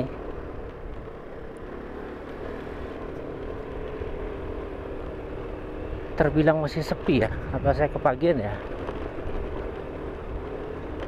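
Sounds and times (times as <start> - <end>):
road and wind rumble: 0.0 - 11.0
vehicle engine running: 0.0 - 11.0.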